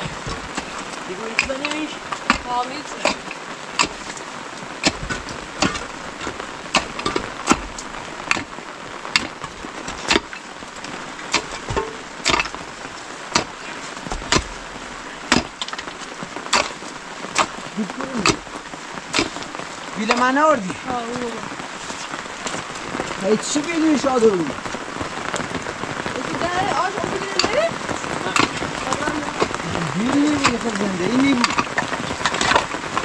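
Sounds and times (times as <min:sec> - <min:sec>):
mattock and hoe chopping earth: 0:00.0 - 0:04.2, 0:04.8 - 0:08.5, 0:09.1 - 0:10.4, 0:11.3 - 0:12.6, 0:13.3 - 0:14.6, 0:15.3 - 0:18.5, 0:19.1 - 0:19.5, 0:28.3 - 0:32.8
rain hissing: 0:00.0 - 0:33.0.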